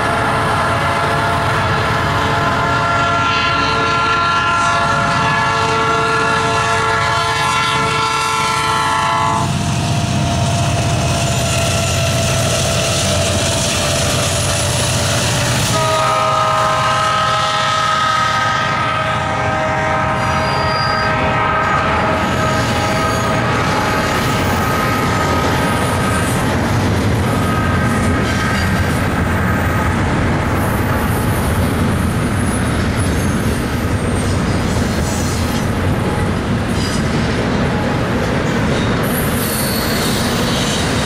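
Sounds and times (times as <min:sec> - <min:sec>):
locomotive air horn: 0:00.0 - 0:26.4, 0:27.2 - 0:28.9
train rumble: 0:00.0 - 0:41.0
rail clatter: 0:09.4 - 0:17.3, 0:21.6 - 0:41.0.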